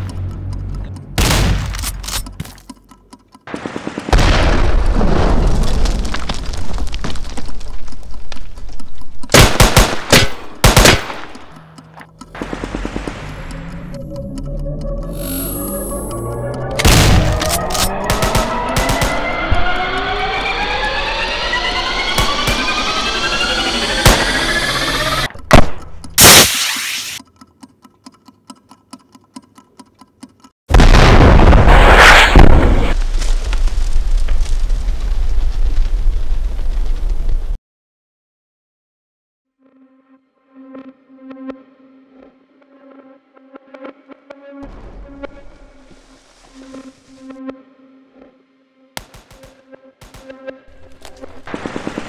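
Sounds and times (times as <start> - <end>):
rapid regular ticking: 0.0 - 1.2, 2.2 - 5.0, 27.2 - 30.6
automatic gunfire: 9.4 - 11.2
film music with sustained notes: 10.4 - 25.3, 39.6 - 52.0
rising whine: 11.5 - 27.2
rocket launch blast: 30.7 - 33.0
loud explosion: 30.7 - 34.0.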